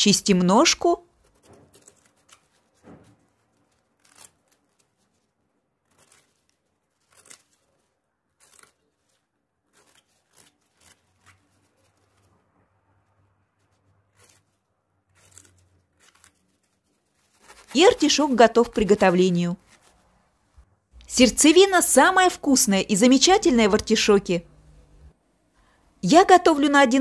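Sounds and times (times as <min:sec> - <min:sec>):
knife scraping vegetable skin: 0:01.1 - 0:12.4, 0:13.6 - 0:19.0.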